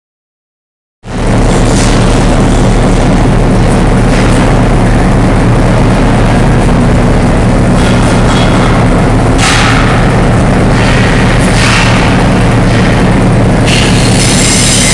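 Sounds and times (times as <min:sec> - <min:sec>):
dense rushing noise: 0:01.0 - 0:14.9
locomotive engine drone: 0:01.0 - 0:14.9.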